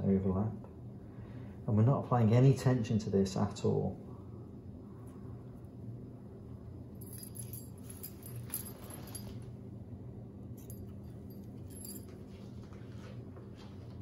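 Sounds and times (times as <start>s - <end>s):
low hum: 3.9s - 13.0s
scissors jingling and clinking: 7.0s - 9.4s, 10.6s - 12.2s.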